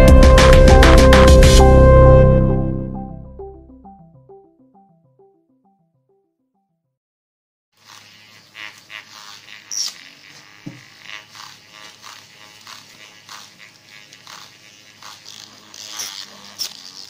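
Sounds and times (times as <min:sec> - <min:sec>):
small electric motors buzzing: 0:07.8 - 0:17.0.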